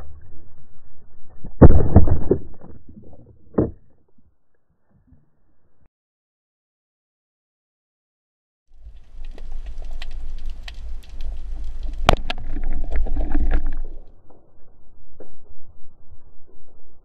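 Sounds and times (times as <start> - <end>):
crackling clicks: 8.7 - 16.8
underwater rumble: 8.7 - 17.0.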